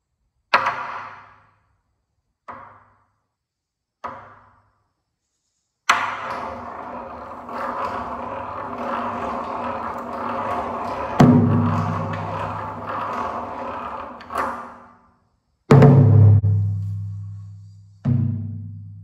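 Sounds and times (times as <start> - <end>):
large barrel drum strokes: 6.6 - 14.4.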